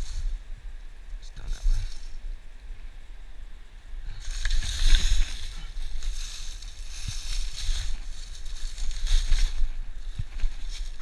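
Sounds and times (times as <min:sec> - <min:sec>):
wind buffeting microphone: 0:03.8 - 0:11.0
footsteps crunching dry leaves: 0:04.1 - 0:11.0.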